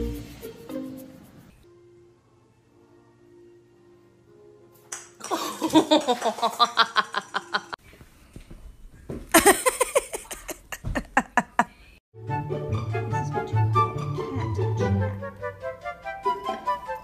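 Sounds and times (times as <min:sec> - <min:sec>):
laughter in quick pulses: 0:05.2 - 0:07.8, 0:09.3 - 0:11.8.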